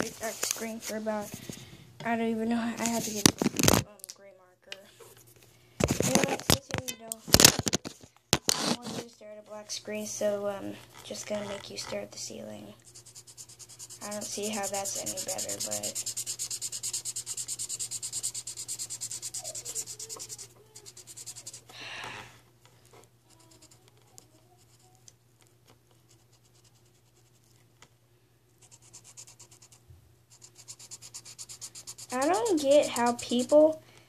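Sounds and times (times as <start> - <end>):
marker scribbling on paper: 12.8 - 21.7, 23.3 - 25.0, 28.6 - 33.8.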